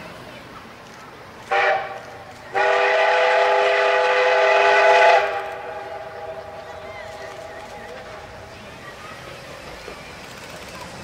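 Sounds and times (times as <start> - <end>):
steam locomotive whistle: 1.5 - 6.8.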